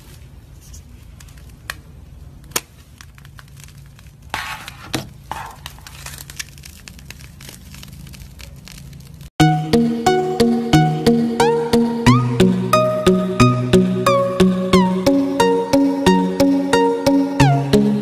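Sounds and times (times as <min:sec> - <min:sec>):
slime crackling and popping: 0:02.4 - 0:09.3.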